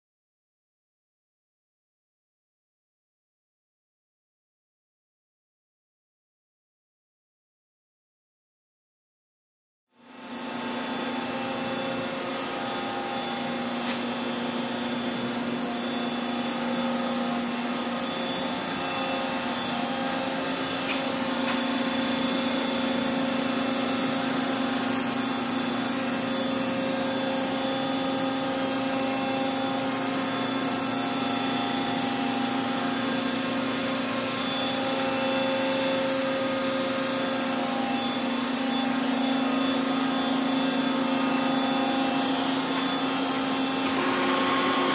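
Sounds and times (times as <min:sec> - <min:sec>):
machinery hum: 0:10.1 - 0:44.9.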